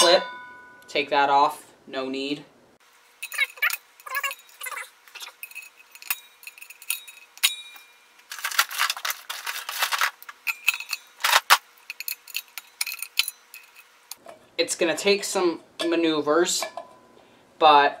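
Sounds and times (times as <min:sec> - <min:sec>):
metallic ringing ping: 0:00.0 - 0:01.1, 0:06.1 - 0:08.1
pliers clicking and scraping on metal: 0:03.2 - 0:14.2.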